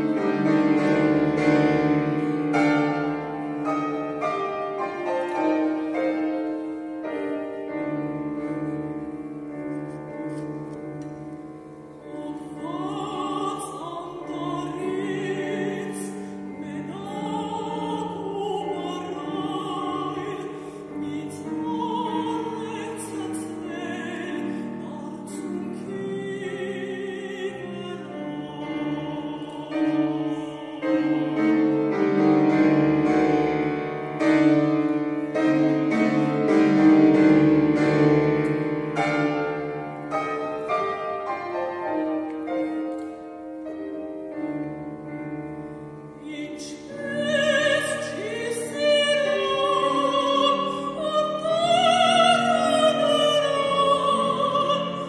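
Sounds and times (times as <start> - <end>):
grand piano: 0.0 - 55.0
woman singing with vibrato: 11.9 - 32.5, 46.1 - 55.0.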